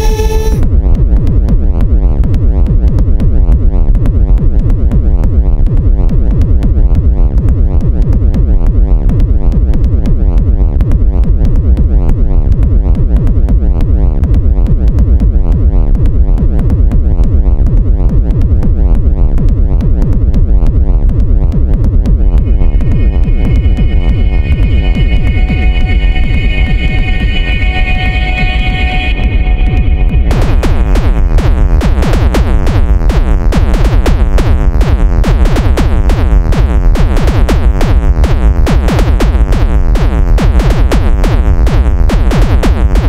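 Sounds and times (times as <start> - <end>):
heavy synthesizer bass pulse: 0.0 - 43.0
industrial techno music: 0.0 - 43.0
thin percussion ticks: 1.0 - 25.6.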